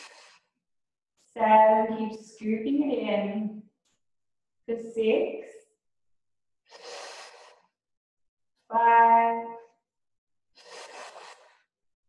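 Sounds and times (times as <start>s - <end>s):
woman breathing hard: 0.0s - 0.5s, 6.7s - 7.8s
woman counting aloud: 8.7s - 9.4s.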